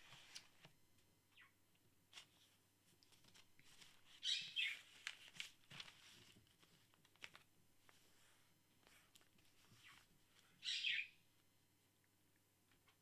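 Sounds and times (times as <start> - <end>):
paper pages rustling: 0.0 - 0.8, 2.1 - 10.6.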